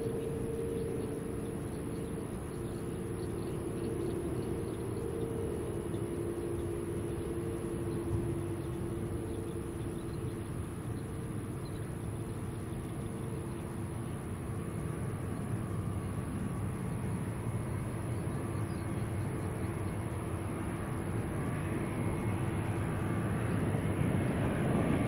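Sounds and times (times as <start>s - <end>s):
whining tones: 0.0s - 13.4s
jet airliner engines running: 0.0s - 25.0s.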